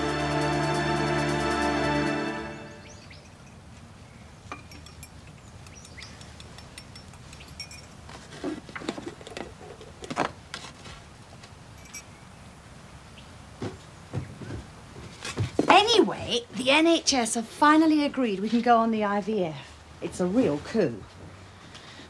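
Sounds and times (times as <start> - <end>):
background music: 0.0 - 3.2.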